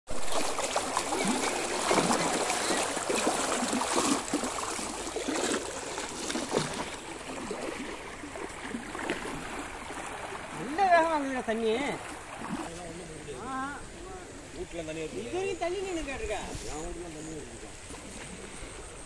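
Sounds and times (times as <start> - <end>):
floodwater gushing over concrete: 0.1 - 13.8.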